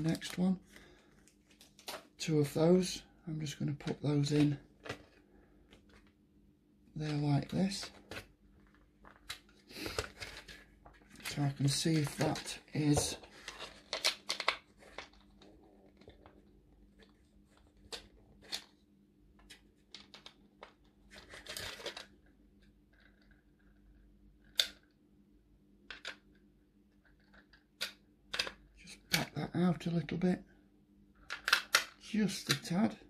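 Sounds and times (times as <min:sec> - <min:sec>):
plastic parts clicking and scraping: 0:07.1 - 0:18.7, 0:19.4 - 0:23.7, 0:25.9 - 0:29.2, 0:31.2 - 0:32.8.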